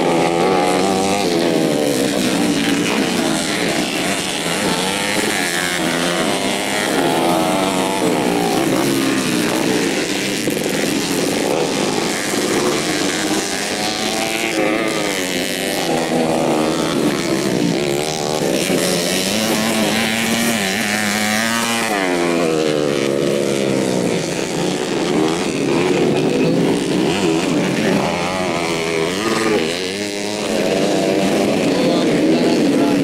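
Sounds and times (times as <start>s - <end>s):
motorcycle engines revving: 0.0s - 33.0s.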